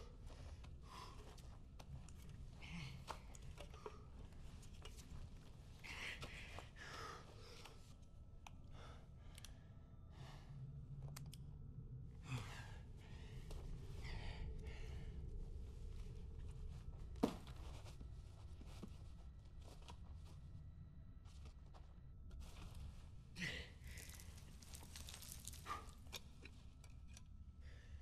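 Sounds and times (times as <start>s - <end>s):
person breathing heavily: 12.2s - 15.5s, 23.4s - 26.0s.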